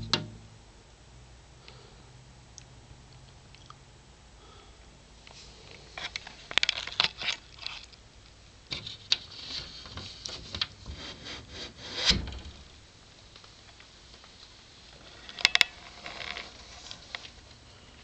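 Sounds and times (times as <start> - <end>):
dull thump: 0.0 - 0.6, 12.0 - 12.7
rubbing and scraping: 8.7 - 12.7.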